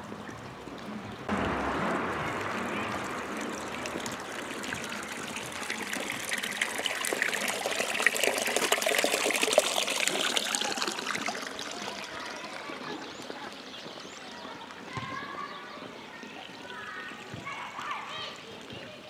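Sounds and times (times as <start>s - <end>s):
fountain water splashing into trough: 0.8s - 14.4s.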